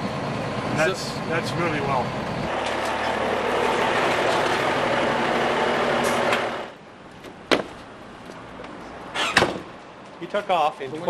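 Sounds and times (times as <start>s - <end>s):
diesel truck engine running: 0.0s - 8.0s.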